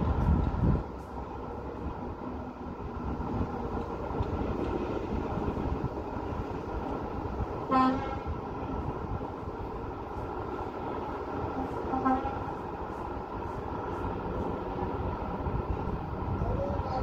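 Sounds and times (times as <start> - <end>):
road traffic hum: 0.0 - 17.0
car horn toot: 7.7 - 8.3, 11.6 - 12.4.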